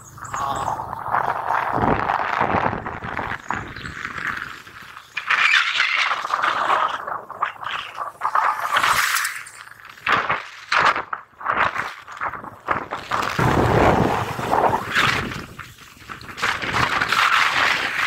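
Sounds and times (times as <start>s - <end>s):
wind buffeting microphone: 0.0s - 5.0s, 10.9s - 18.0s.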